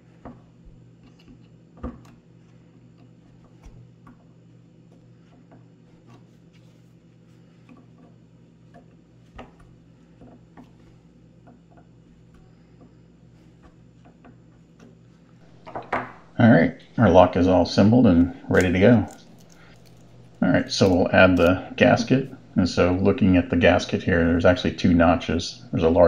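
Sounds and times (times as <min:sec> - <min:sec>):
low hum: 0:15.4 - 0:26.0.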